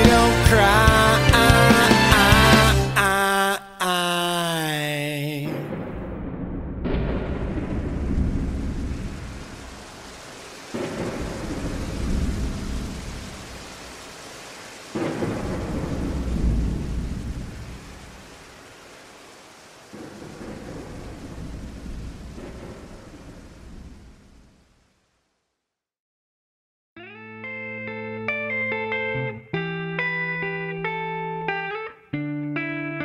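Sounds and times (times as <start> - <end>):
steady rain: 0.0 - 3.1, 6.9 - 25.4
thunder clapping and rumbling: 5.4 - 19.2, 19.8 - 24.7.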